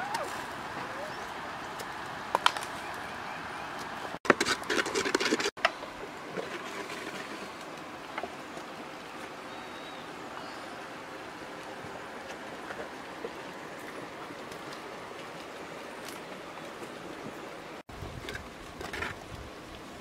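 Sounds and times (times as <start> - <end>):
wooden spatula scraping a pot: 4.3 - 5.5.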